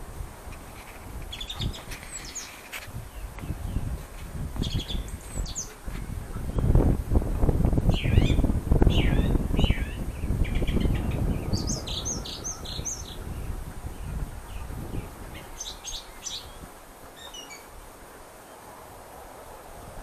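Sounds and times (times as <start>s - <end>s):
songbirds chirping and singing: 0.8s - 4.0s, 4.6s - 5.8s, 7.9s - 17.7s.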